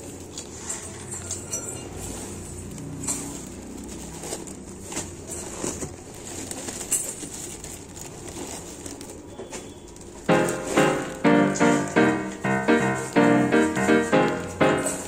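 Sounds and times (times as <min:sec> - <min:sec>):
dried chickpeas shifting: 0:01.9 - 0:10.3
plastic packet crinkling: 0:02.6 - 0:10.3.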